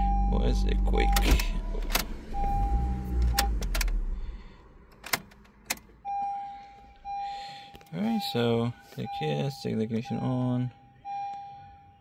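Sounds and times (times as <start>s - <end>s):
steady electronic tone: 0.0s - 4.3s
car engine idling: 0.0s - 8.8s
ignition key clicks and jingles: 1.0s - 2.2s, 4.9s - 6.0s.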